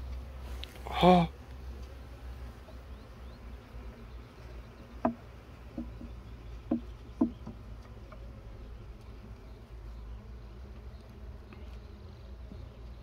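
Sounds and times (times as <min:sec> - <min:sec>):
honeybees humming: 0:00.0 - 0:13.0
wooden hive frames knocking: 0:04.8 - 0:08.4.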